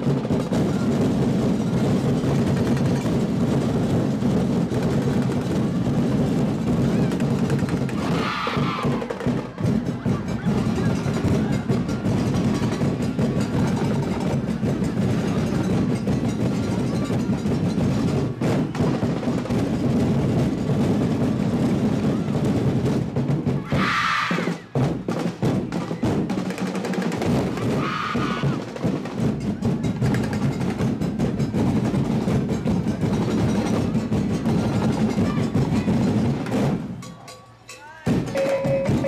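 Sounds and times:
percussion ensemble rhythm: 0.0s - 39.0s.

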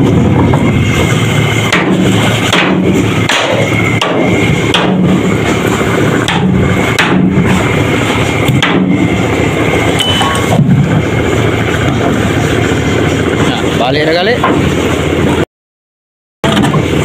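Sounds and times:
engine droning: 0.0s - 15.5s, 16.4s - 17.0s
sharp knocks: 1.7s - 5.2s, 6.2s - 7.4s, 8.5s - 9.0s.

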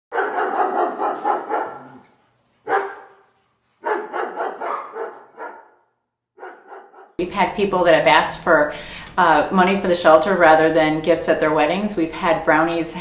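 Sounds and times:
dog barking: 0.1s - 2.0s, 2.6s - 7.2s.

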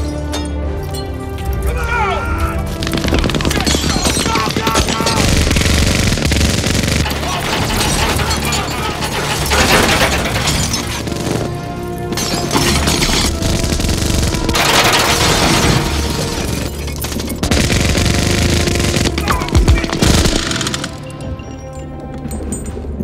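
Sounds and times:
film score music: 0.0s - 23.0s
rapid minigun fire: 2.8s - 11.6s, 12.5s - 16.8s, 17.4s - 21.0s
glass shattering: 3.5s - 5.2s, 7.0s - 11.2s, 12.1s - 13.4s, 14.5s - 17.5s.

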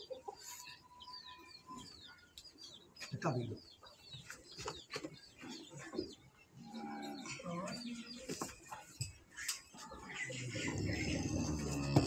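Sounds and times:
small birds chirping: 0.0s - 12.0s
cow mooing: 10.7s - 12.0s.

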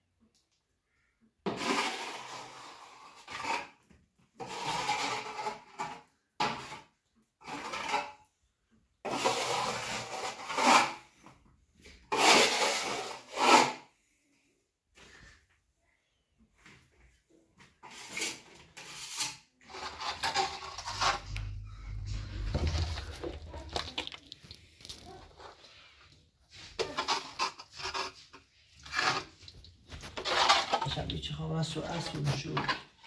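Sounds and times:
trowel scraping wet plaster: 1.5s - 8.2s, 9.0s - 11.2s, 12.1s - 13.9s, 17.8s - 25.9s, 26.5s - 31.2s.

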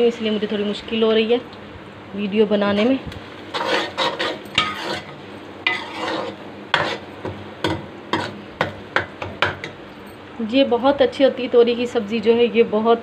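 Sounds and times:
food sizzling in oil: 2.4s - 10.0s
ladle scraping a steel wok: 3.5s - 7.1s, 8.1s - 8.4s.

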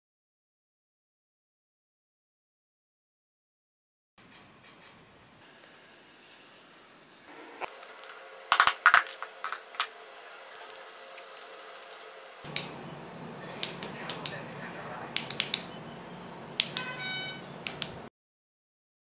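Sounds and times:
small metal parts clicking: 10.5s - 12.1s.

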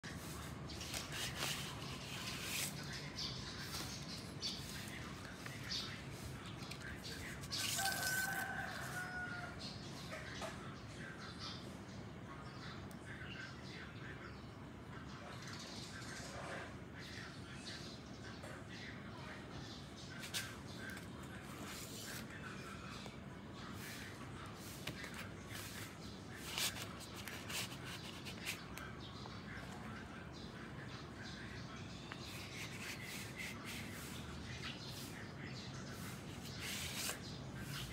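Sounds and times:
papery rubbing of cardboard: 0.0s - 9.4s, 20.2s - 22.3s, 23.7s - 28.8s, 32.1s - 35.2s, 35.9s - 37.9s
cardboard scrapes: 0.1s - 2.9s, 24.6s - 28.6s, 36.0s - 37.9s.

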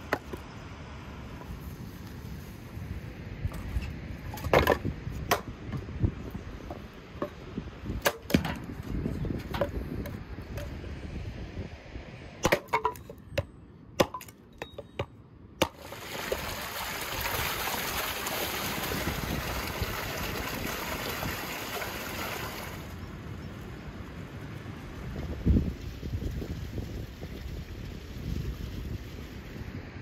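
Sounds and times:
axe chopping firewood: 4.4s - 5.5s, 8.0s - 8.7s, 12.4s - 15.8s
water running from fountain: 15.8s - 23.0s.

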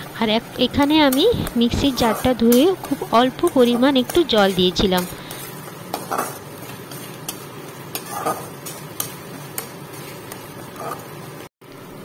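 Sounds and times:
paste sizzling in a metal pan: 0.0s - 11.5s
metal spatula scraping a pan: 1.2s - 9.1s.

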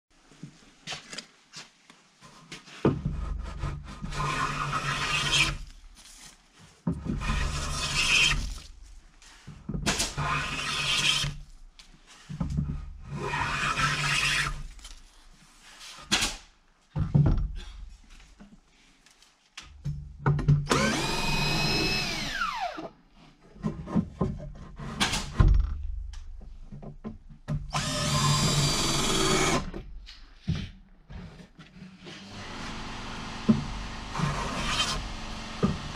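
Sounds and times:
cordless drill into wood: 4.1s - 5.7s, 7.2s - 8.6s, 10.1s - 11.4s, 20.7s - 22.9s, 27.7s - 29.8s, 32.3s - 35.9s.

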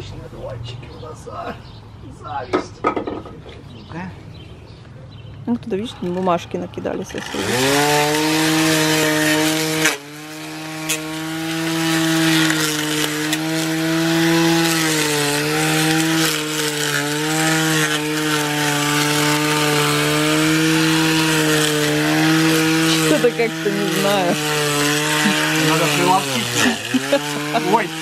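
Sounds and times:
string trimmer motor whine: 7.1s - 28.0s
trimmer line swishing through grass: 14.5s - 28.0s.

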